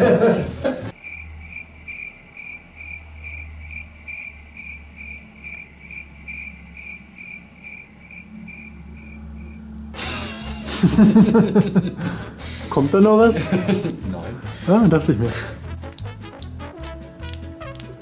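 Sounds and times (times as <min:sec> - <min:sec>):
crickets chirping: 0:00.9 - 0:12.7
low hum: 0:01.0 - 0:12.8.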